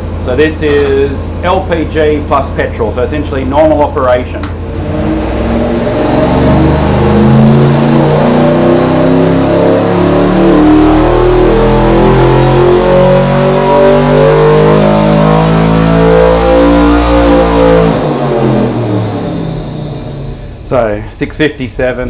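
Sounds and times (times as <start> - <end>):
engine revving at full throttle: 4.5 - 20.6.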